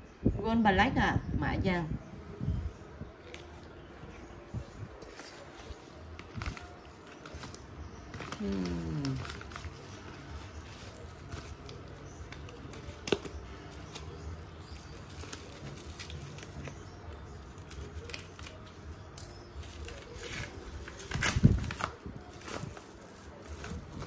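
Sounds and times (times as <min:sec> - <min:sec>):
envelope crinkling open: 0:05.0 - 0:24.0
paper rustling: 0:05.0 - 0:24.0.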